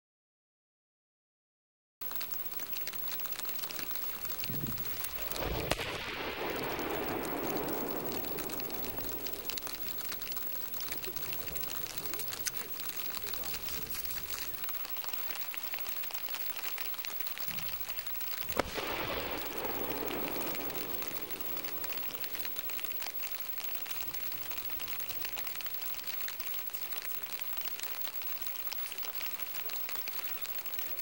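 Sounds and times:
spray pattering onto water: 2.0s - 31.0s
sharp underwater explosion: 3.7s - 14.9s, 17.5s - 25.9s
rush of water: 17.4s - 26.0s.

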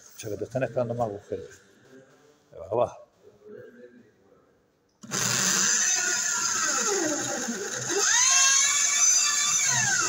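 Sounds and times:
electric drill boring into wood: 5.0s - 10.0s.

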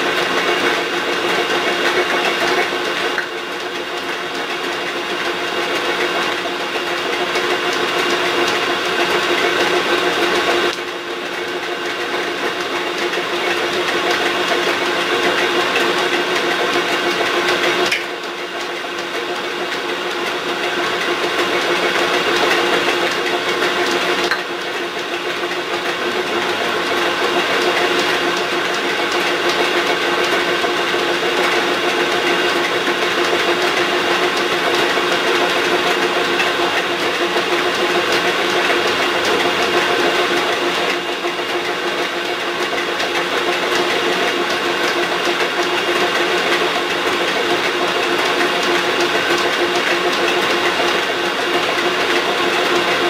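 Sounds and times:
drill press gear whine: 0.0s - 53.0s.

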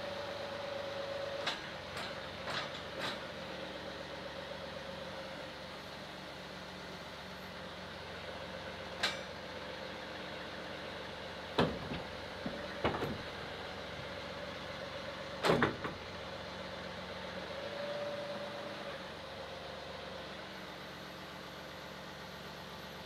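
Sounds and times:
diesel engine running: 0.0s - 23.0s
metal clanks and knocks: 11.6s - 13.4s.

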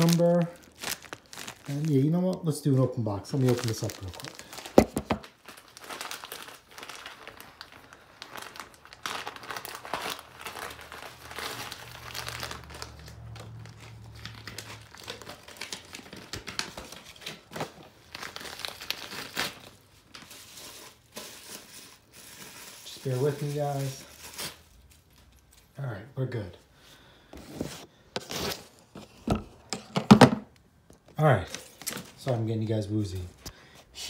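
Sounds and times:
packaging rustling: 0.0s - 25.7s.

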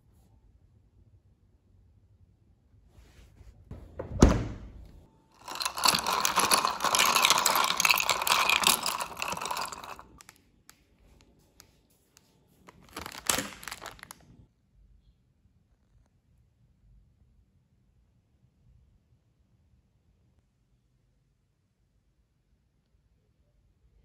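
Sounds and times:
spoon stirring ice in glass: 5.4s - 10.2s, 12.8s - 14.1s
plastic snack packets crinkling: 5.4s - 10.3s, 12.7s - 14.2s.

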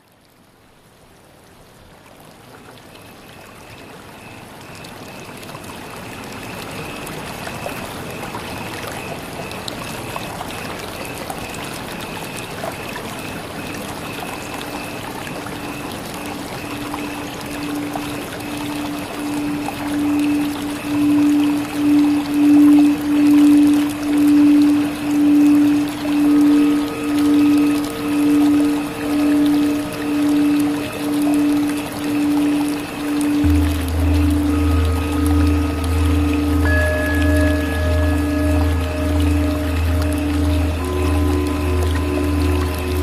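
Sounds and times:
rushing water noise: 3.8s - 43.0s
low held tone: 13.8s - 43.0s
faint high tone: 16.7s - 43.0s.

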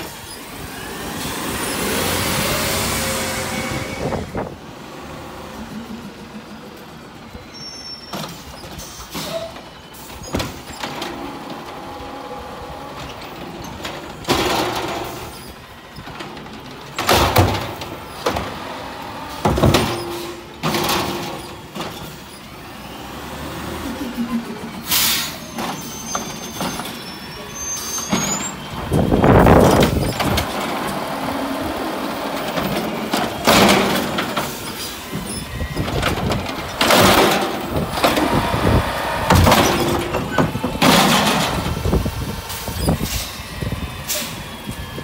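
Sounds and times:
garbage truck engine running: 0.0s - 45.0s
metal clanks and bangs: 13.0s - 18.6s, 19.3s - 22.4s, 32.4s - 43.3s.

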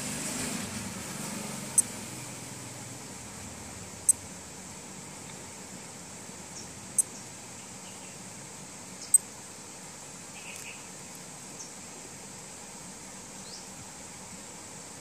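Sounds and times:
digital watch beeping: 1.7s - 1.9s.

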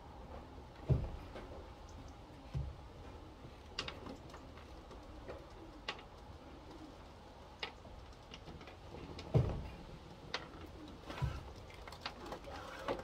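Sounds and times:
pigeons cooing: 4.3s - 7.6s, 8.8s - 13.0s.

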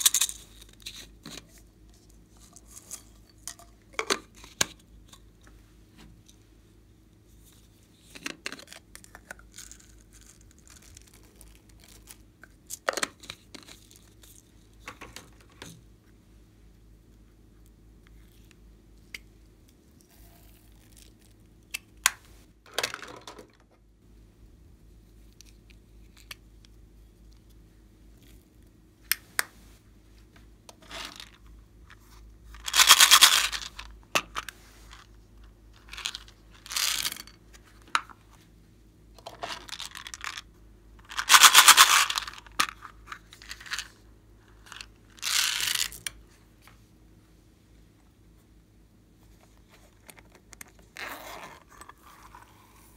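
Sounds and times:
beads and sprinkles rattling out: 0.0s - 1.0s, 32.6s - 34.4s, 35.8s - 37.4s, 39.4s - 40.4s, 41.0s - 42.8s, 44.6s - 46.0s.

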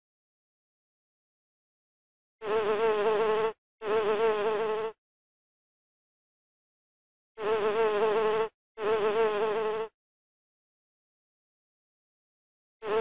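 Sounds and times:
bee buzzing: 2.4s - 5.0s, 7.4s - 10.0s.

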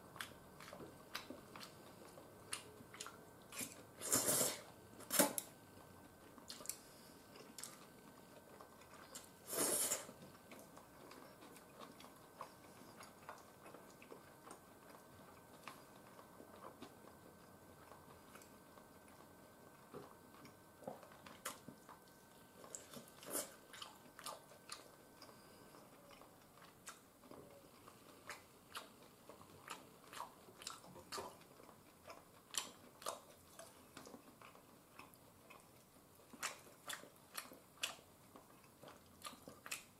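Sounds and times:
person chewing: 0.1s - 5.4s, 6.2s - 39.9s
noodle slurp: 3.6s - 4.7s, 9.4s - 10.2s.

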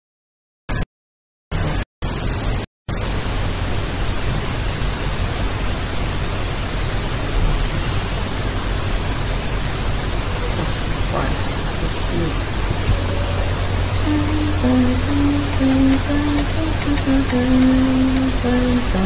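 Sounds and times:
static hiss: 3.0s - 19.0s
low hum: 9.7s - 19.0s.

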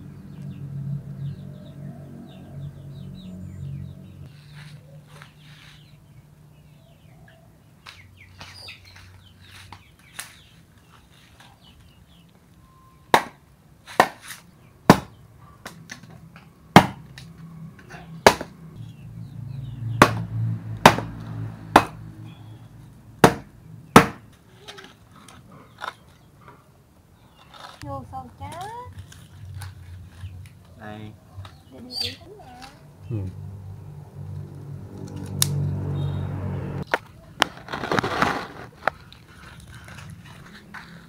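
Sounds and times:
wood chopping strikes: 13.1s - 15.8s, 16.8s - 17.1s, 18.2s - 18.6s, 20.0s - 22.1s, 23.2s - 24.3s.

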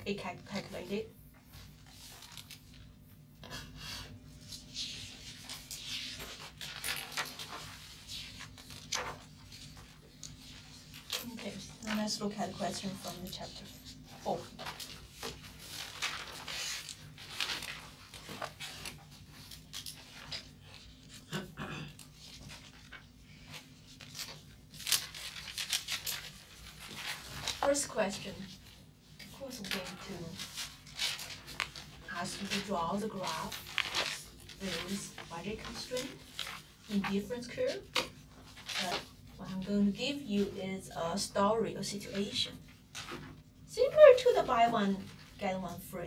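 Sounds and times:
paper rustling: 0.5s - 3.6s, 4.3s - 21.3s, 22.0s - 41.3s, 41.9s - 46.0s
book pages turning: 1.6s - 3.0s, 4.4s - 21.3s, 22.0s - 39.7s.

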